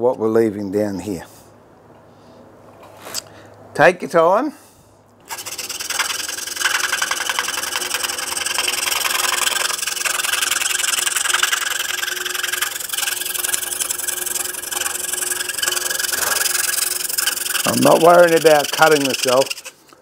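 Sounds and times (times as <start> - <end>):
scroll saw buzzing: 5.2 - 20.0.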